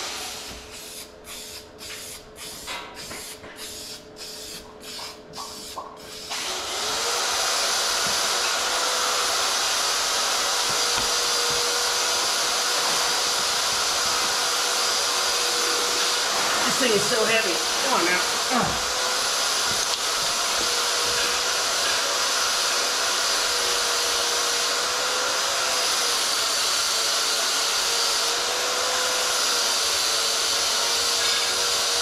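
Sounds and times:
spray paint can hissing: 0.5 - 6.3.

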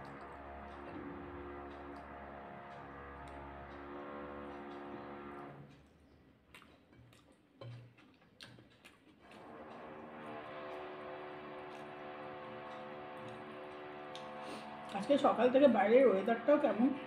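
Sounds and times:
soft background music: 0.0 - 5.7, 9.4 - 17.0
clicks and taps of eating from a plate: 5.7 - 9.4.

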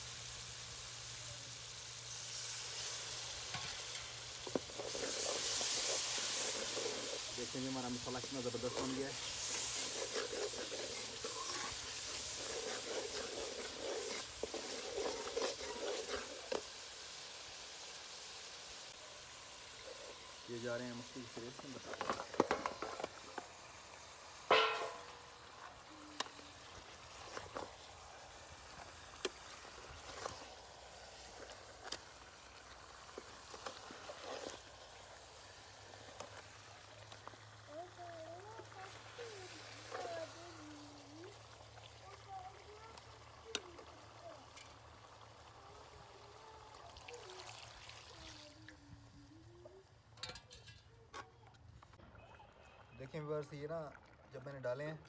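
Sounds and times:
simmering curry hissing: 0.0 - 50.2
food sizzling in hot oil: 0.0 - 50.8
ladle stirring in wok: 1.8 - 17.3, 26.6 - 36.6
ladle knocking against pan: 24.5 - 25.0.

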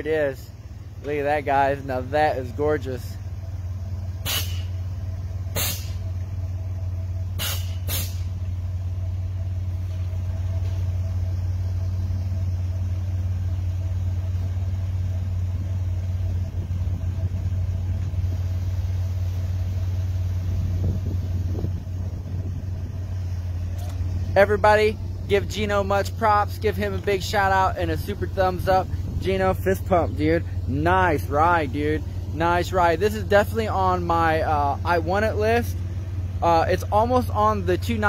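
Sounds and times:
steady low hum: 0.0 - 38.0
sharp air blasts: 4.2 - 4.8, 5.5 - 6.1, 7.3 - 8.4.

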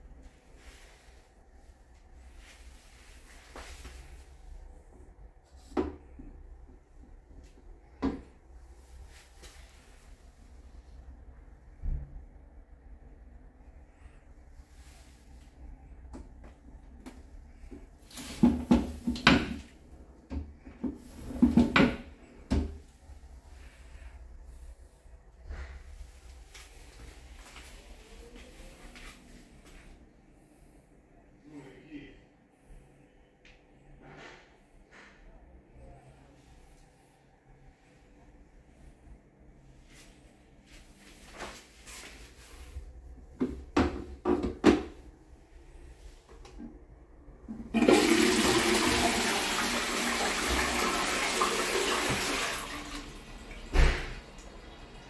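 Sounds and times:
plastic toilet seat knocks: 43.4 - 45.0.

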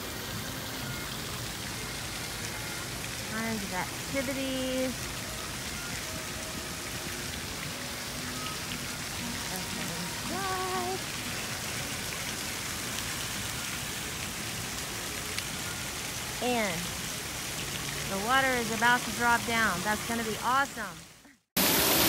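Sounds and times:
falling and splashing water: 0.0 - 22.0.

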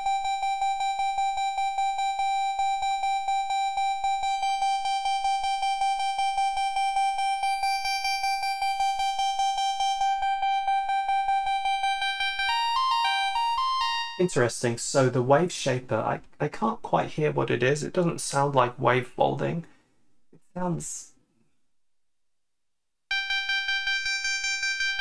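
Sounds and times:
pulsing synthesizer note: 0.0 - 14.2.

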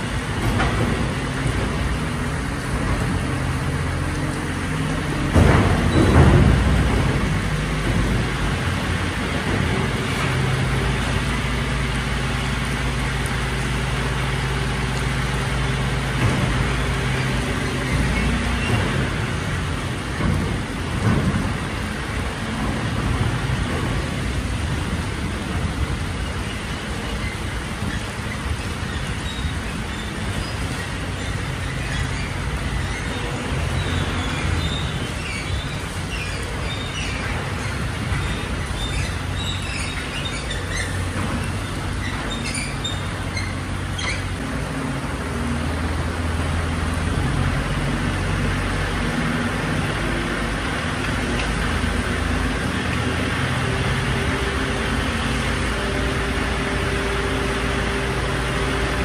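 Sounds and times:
engine knocks: 0.0 - 46.2
rain hiss: 0.0 - 59.0
truck diesel engine running: 0.0 - 59.0.

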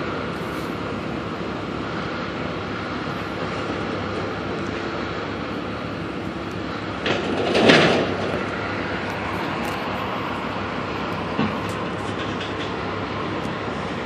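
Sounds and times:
excavator running: 0.0 - 14.0
crash and scrape of metal debris: 7.0 - 8.3.

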